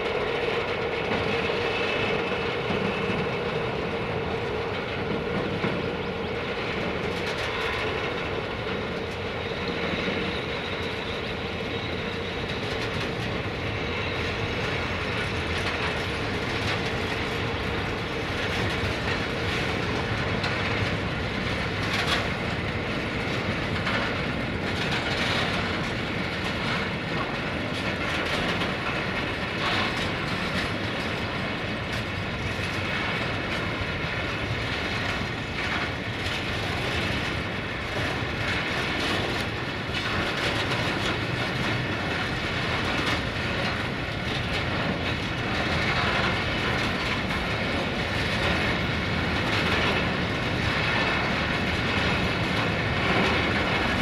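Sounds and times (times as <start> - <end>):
train wheels rumbling on rail: 0.0 - 54.0
wheels clicking over rail joints: 0.0 - 54.0.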